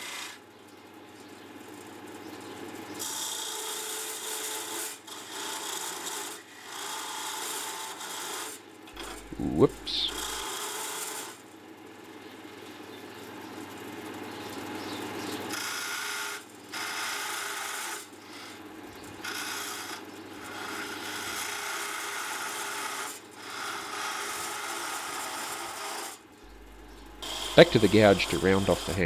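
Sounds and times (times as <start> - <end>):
lathe tool scraping wood: 3.2 - 11.2, 19.2 - 29.0
lathe motor running: 9.0 - 10.4, 26.5 - 29.0.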